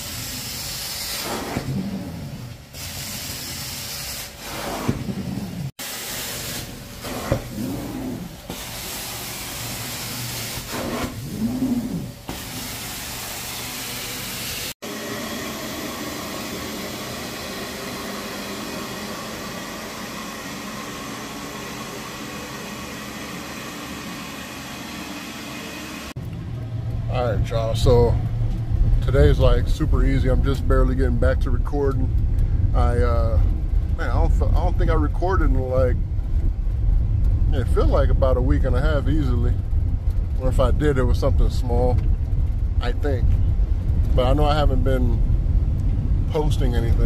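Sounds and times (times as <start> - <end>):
spraying: 2.7 - 14.8
carpet cleaner vacuum hiss: 2.8 - 26.1
steady machine hum: 11.2 - 47.0.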